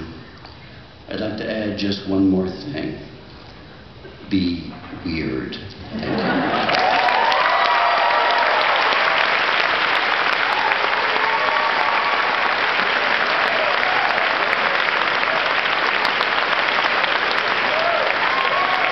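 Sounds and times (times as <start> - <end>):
audience applauding: 6.1 - 18.9.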